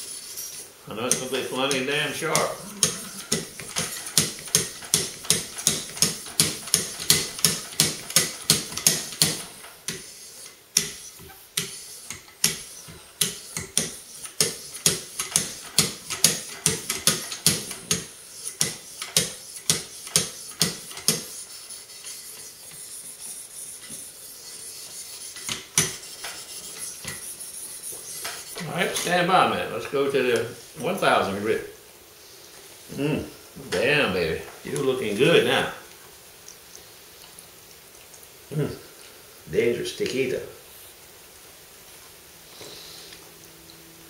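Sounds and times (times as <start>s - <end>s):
sharpening paddles scraping blade: 0.0s - 7.3s, 17.1s - 29.1s.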